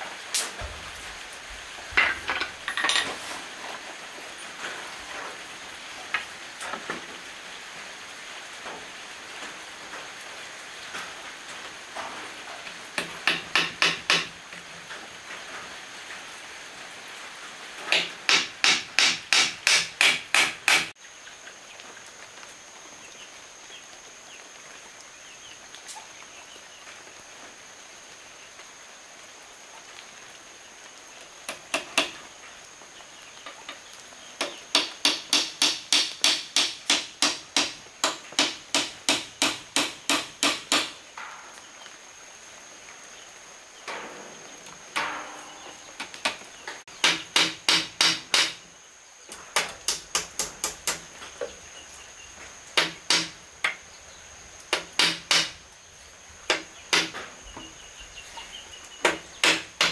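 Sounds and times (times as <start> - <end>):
hammer striking nails into wood: 13.0 - 14.3, 17.9 - 20.9, 34.4 - 41.0, 47.0 - 48.6, 49.6 - 51.0, 52.8 - 53.8, 54.7 - 55.6, 56.5 - 57.2, 59.0 - 59.9.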